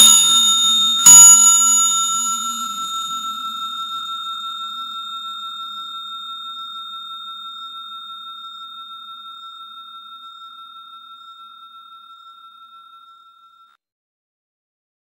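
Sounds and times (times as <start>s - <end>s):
notification bell ding: 0.0s - 8.6s.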